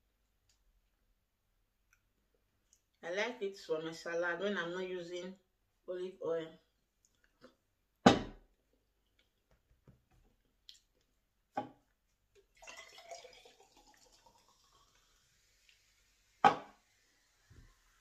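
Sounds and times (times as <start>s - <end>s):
bottle set down with thump: 8.1s - 8.4s, 16.4s - 16.7s
knock: 8.1s - 8.4s
soft fizzing hiss: 12.3s - 18.0s
drink pouring into glass: 12.4s - 18.0s.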